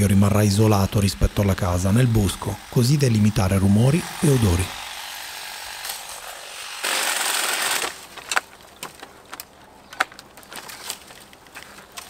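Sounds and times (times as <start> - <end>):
branches snapping: 5.6 - 12.0
brush rustling crash: 6.9 - 12.0.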